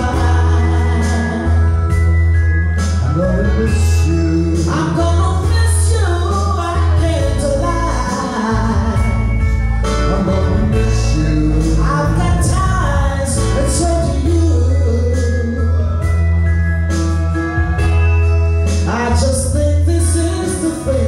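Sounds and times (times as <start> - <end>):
man singing into microphone: 0.0 - 1.9, 3.0 - 9.3, 9.9 - 16.0, 18.8 - 21.0
woman singing into microphone: 0.0 - 1.9, 4.7 - 9.2
backing track with bass: 0.0 - 21.0.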